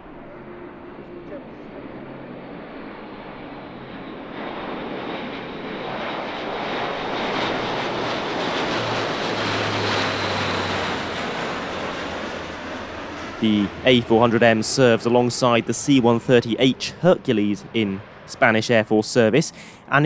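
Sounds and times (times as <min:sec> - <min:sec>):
low propeller hum: 0:00.0 - 0:20.0
turboprop engines roaring: 0:00.0 - 0:20.0.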